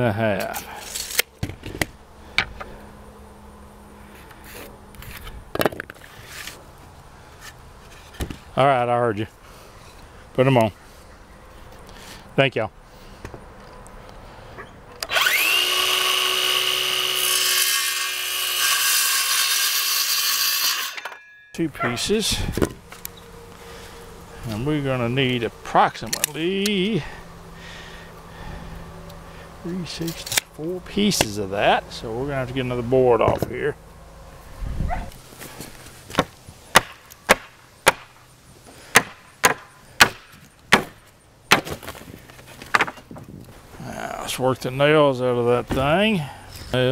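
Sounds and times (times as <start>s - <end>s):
circular saw cutting wood: 15.0s - 28.1s
hammer whacking wooden pallet: 36.2s - 38.1s, 38.9s - 41.9s.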